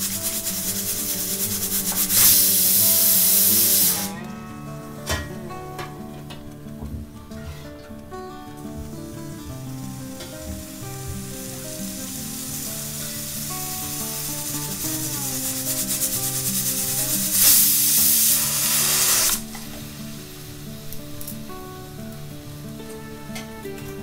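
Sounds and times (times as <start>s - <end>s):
pressure cooker steam hiss: 0.0s - 4.1s, 9.5s - 22.0s
water spitting over lid: 0.0s - 4.1s, 10.2s - 19.8s
pressure cooker whistle: 1.9s - 4.1s, 13.8s - 19.4s.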